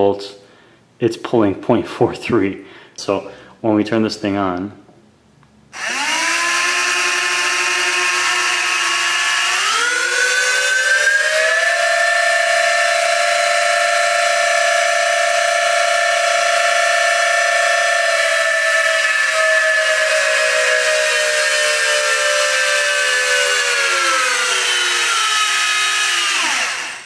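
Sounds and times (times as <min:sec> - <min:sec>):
small motors whining: 0:05.8 - 0:27.0.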